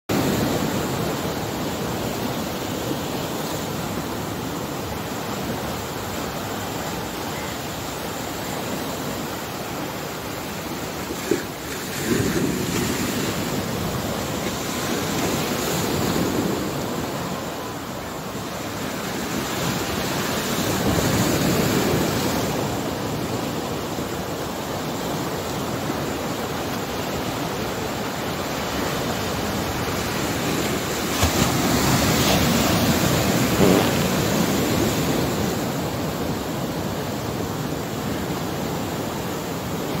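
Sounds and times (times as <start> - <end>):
sea surf breaking on rocks: 0.1 - 40.0.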